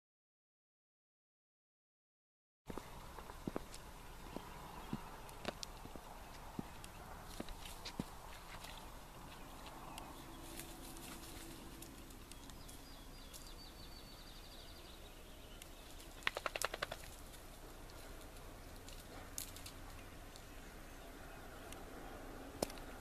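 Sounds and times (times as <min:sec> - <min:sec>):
faint woodland ambience: 0:02.7 - 0:23.0
small ticks: 0:15.6 - 0:20.5
rapid sharp clicks: 0:16.0 - 0:17.3.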